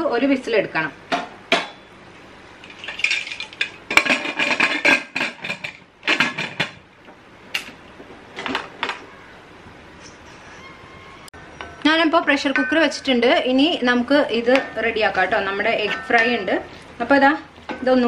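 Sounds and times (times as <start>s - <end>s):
metal lid clinking and scraping: 14.4s - 16.6s.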